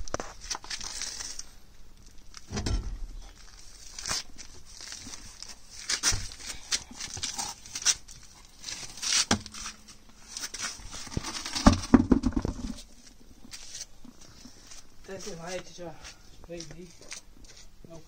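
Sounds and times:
heavy wheel thuds on concrete: 0:11.6 - 0:12.8.

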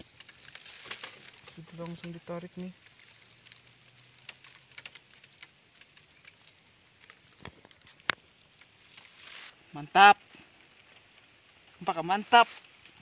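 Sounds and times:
dry leaves crackling and rustling: 0:00.0 - 0:13.0.

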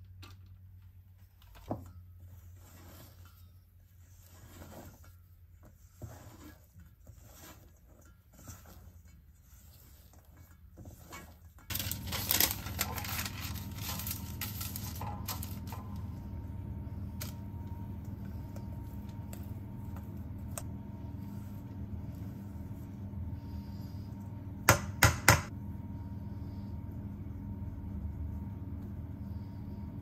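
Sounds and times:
spatula scraping metal bowl: 0:02.4 - 0:11.8
low hum: 0:11.7 - 0:30.0.

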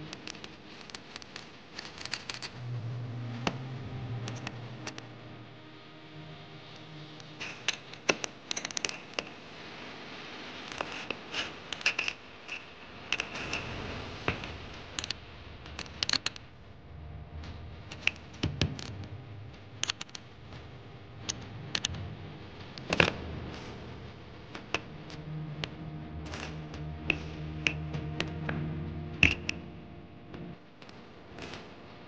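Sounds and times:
small metallic clicks and scrapes: 0:00.1 - 0:02.6, 0:10.7 - 0:13.6.

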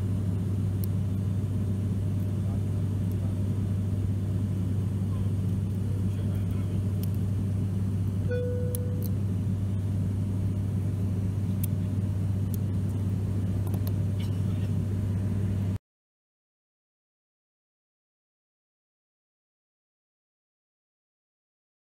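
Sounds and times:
turboprop cabin drone: 0:00.0 - 0:15.8
short beep-like tone: 0:08.3 - 0:09.0.

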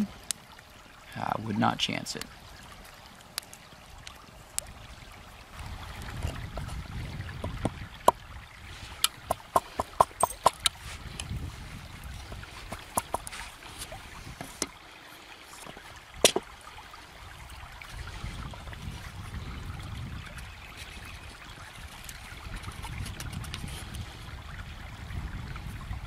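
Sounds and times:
knife knocking on wood: 0:12.7 - 0:13.3.

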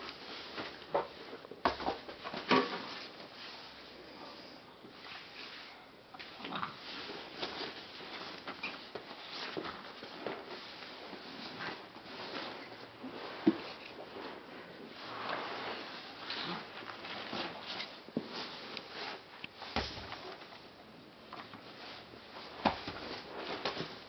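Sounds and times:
rubber balls bumping: 0:19.7 - 0:20.4.

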